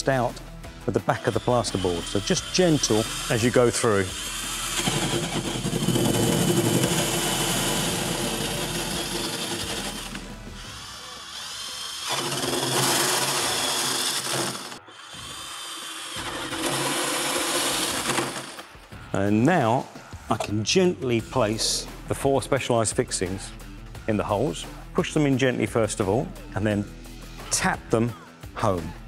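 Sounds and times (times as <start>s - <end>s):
cordless drill boring through plasterboard: 1.2s - 18.6s.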